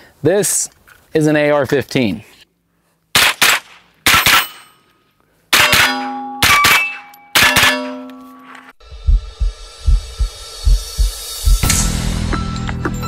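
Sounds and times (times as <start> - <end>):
rifle shots: 3.2 - 4.7, 5.5 - 8.0
steel target ringing: 5.6 - 8.7.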